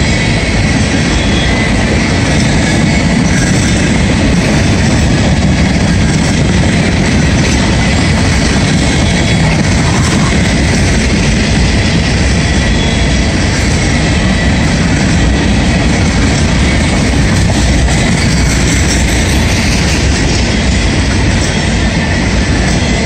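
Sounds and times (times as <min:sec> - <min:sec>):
steel wheels rumbling on rails: 0:00.0 - 0:23.0.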